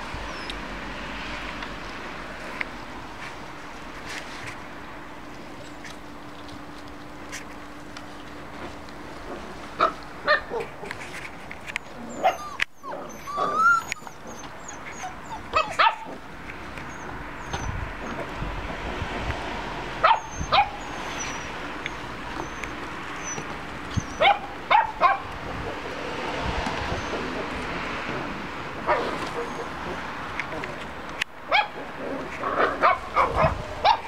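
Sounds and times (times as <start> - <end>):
puppies yipping and barking: 0.0 - 0.7, 9.8 - 18.4, 20.0 - 25.9, 26.6 - 30.7, 31.5 - 34.0
puppy whining yelp: 0.3 - 0.6, 11.8 - 16.2, 16.8 - 18.3, 20.0 - 25.3, 26.8 - 27.4, 28.9 - 30.0.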